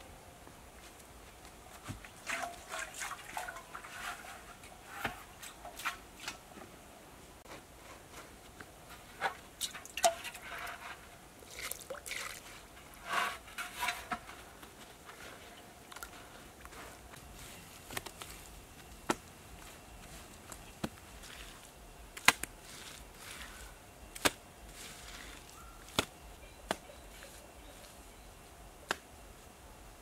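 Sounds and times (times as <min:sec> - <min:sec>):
water splashing onto dry soil: 0:11.5 - 0:12.4.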